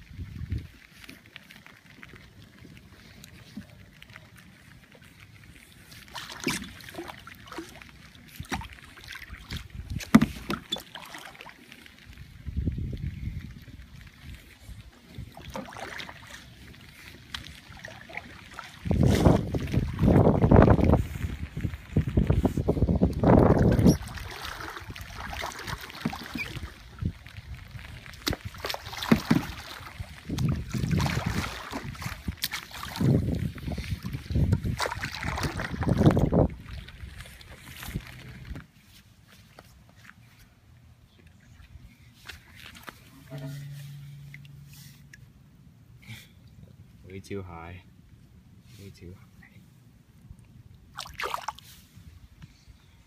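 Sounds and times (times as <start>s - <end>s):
paddle splashing in water: 4.8s - 12.1s, 14.1s - 22.6s, 23.2s - 38.6s, 50.9s - 52.0s
paddle knocking plastic hull: 10.0s - 10.9s, 29.0s - 29.7s.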